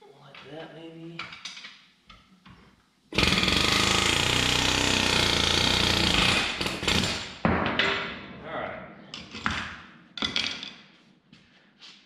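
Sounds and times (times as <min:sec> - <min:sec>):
pneumatic air hammer hammering: 0:03.2 - 0:07.4.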